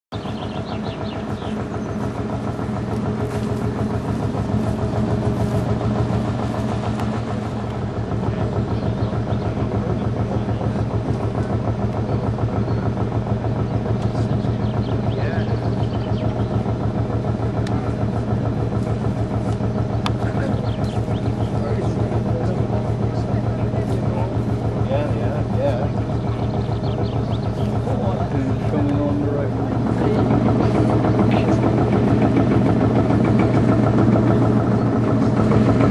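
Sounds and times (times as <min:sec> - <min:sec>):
bird chirps: 0:00.1 - 0:02.1, 0:14.4 - 0:16.6, 0:20.5 - 0:21.7, 0:26.1 - 0:27.9
engine idling: 0:00.1 - 0:35.9.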